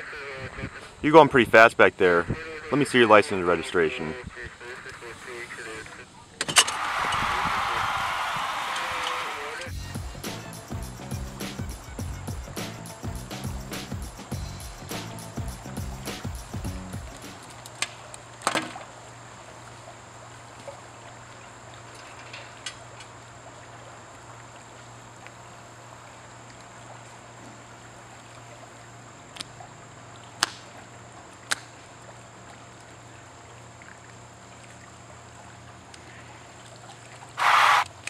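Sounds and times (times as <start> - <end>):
faint trickle of water: 17.5 - 37.4.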